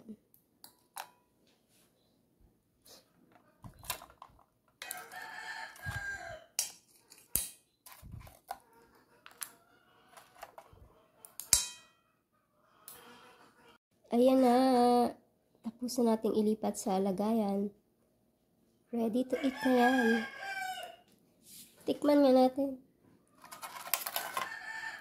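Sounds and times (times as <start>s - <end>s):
rooster crowing: 4.8s - 6.6s, 19.3s - 21.1s, 24.2s - 25.0s.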